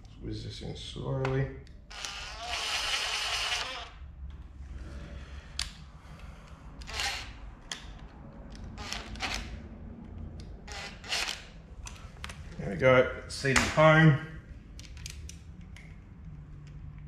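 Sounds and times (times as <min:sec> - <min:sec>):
cordless driver motor hum: 0:01.9 - 0:04.0, 0:06.8 - 0:07.4.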